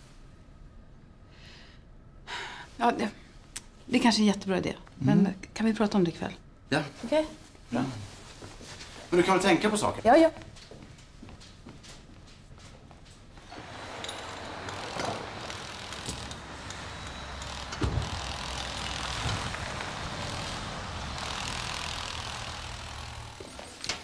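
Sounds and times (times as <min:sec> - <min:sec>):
car driving slowly past: 0:13.2 - 0:23.8.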